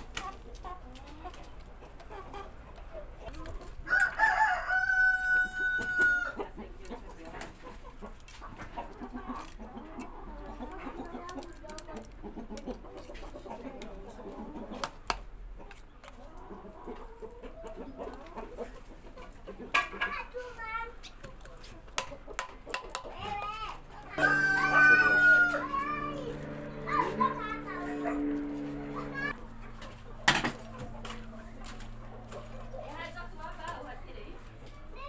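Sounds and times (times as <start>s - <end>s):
rooster crowing: 3.9s - 6.4s, 24.1s - 26.9s.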